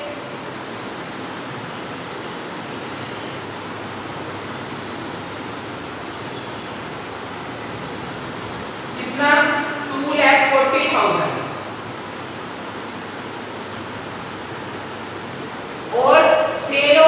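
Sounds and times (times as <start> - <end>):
fan blowing air: 0.0 - 17.0.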